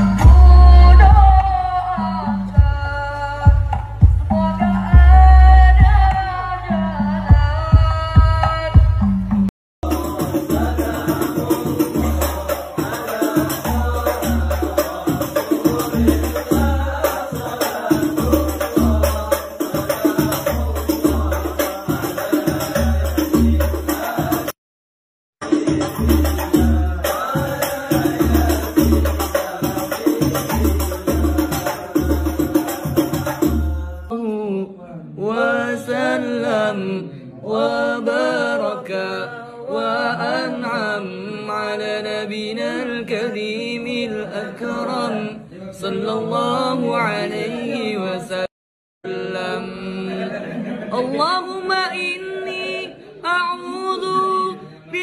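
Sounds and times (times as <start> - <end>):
deep bass drum booms: 0.0 - 1.5, 3.5 - 6.2, 7.3 - 11.0
men singing together: 0.0 - 8.6, 9.8 - 24.6, 25.4 - 34.1, 35.2 - 53.2
sharp hand drum strokes: 7.3 - 24.6, 25.4 - 34.1.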